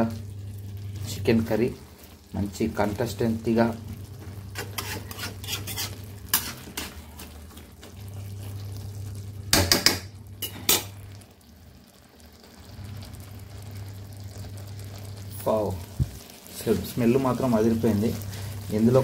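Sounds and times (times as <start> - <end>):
low steady hum: 0.0 - 19.0
metal spatula scraping a pan: 4.2 - 7.4.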